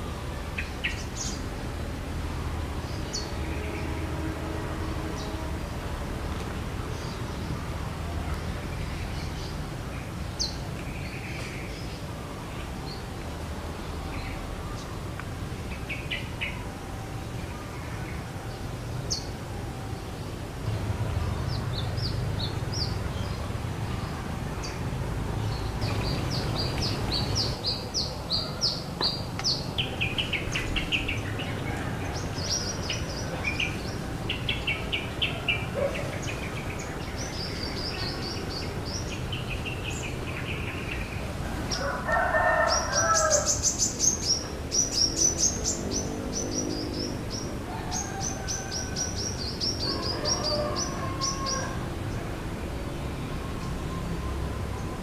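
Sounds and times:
small birds chirping: 20.7s - 41.9s
rooster crowing: 41.4s - 43.7s, 47.6s - 52.0s.

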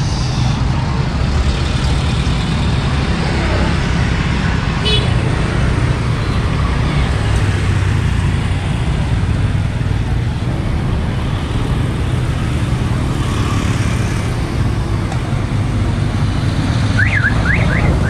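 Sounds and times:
traffic engine rumble: 0.0s - 18.0s.

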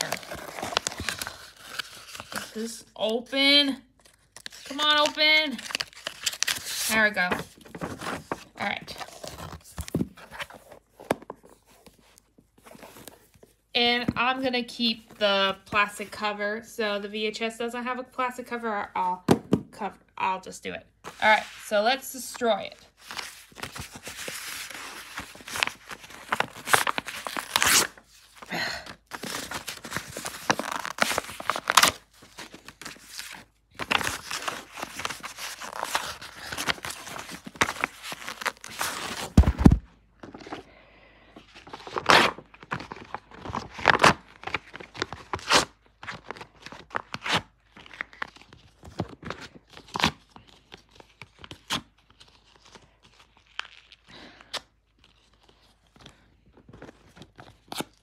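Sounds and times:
paper tearing: 23.1s - 28.0s.

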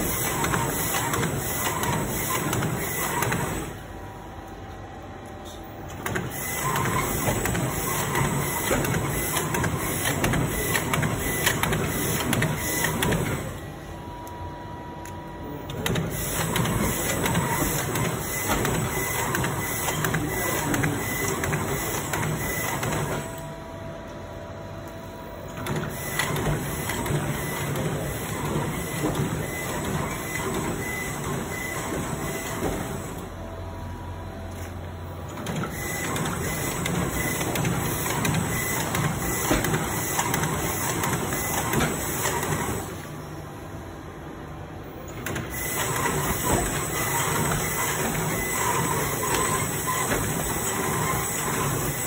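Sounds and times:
bag-making machine clattering: 0.0s - 3.7s, 6.0s - 13.6s, 15.7s - 23.3s, 25.6s - 33.1s, 35.4s - 43.0s, 45.2s - 52.0s.

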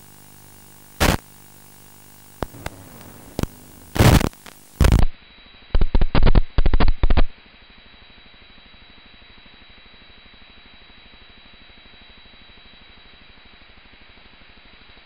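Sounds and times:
static hiss and crackle bursts: 0.0s - 7.4s
clicks: 2.4s - 5.0s.

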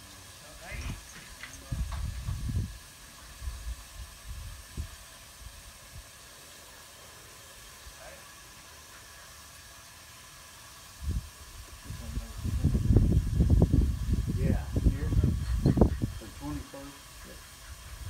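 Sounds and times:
steady hiss: 0.0s - 18.0s
microphone wind buffeting: 1.6s - 2.8s, 3.4s - 5.0s, 11.0s - 16.4s.

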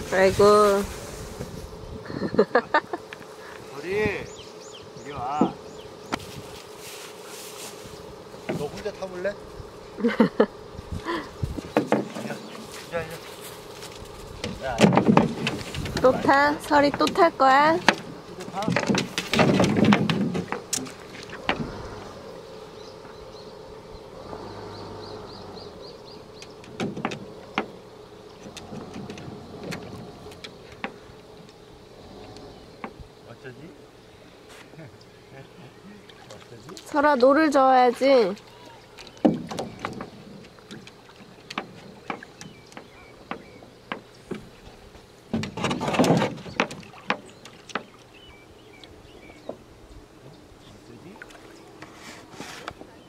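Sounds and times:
insects buzzing: 0.0s - 53.0s
knocks and clunks on canoe hull: 8.4s - 9.0s, 11.5s - 12.9s, 14.3s - 22.1s, 26.4s - 27.8s, 28.4s - 31.1s, 32.7s - 33.0s, 39.0s - 48.1s
water rushing and scraping: 11.1s - 23.2s, 24.0s - 33.1s, 35.7s - 48.4s, 50.6s - 53.0s
dog's feet knocking on canoe hull: 39.1s - 44.5s.

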